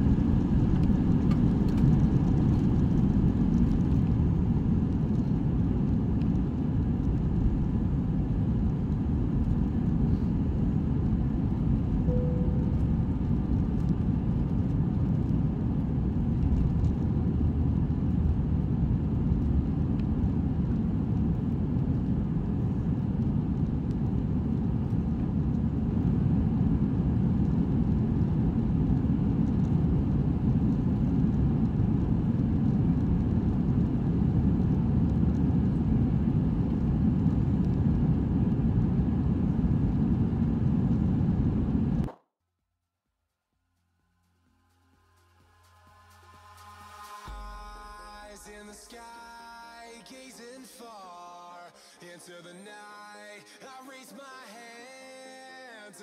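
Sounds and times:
aircraft cabin engine rumble: 0:00.0 - 0:42.1
cabin chime tone: 0:12.1 - 0:13.3.

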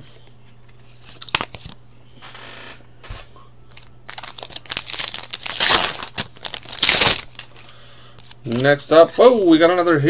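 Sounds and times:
foil pack crinkling: 0:03.8 - 0:09.6.

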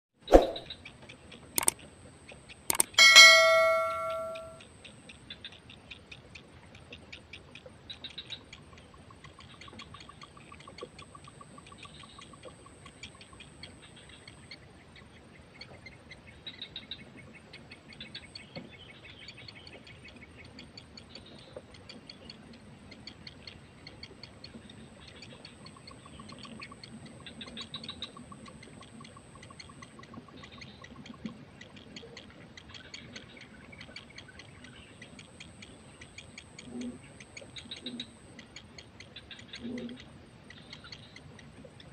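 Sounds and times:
quick low-pitched pulses: 0:00.3 - 0:00.7.

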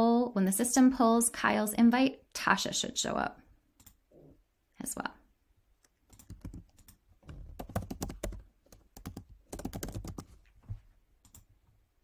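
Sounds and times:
keyboard typing: 0:05.8 - 0:10.4, 0:11.2 - 0:11.5.

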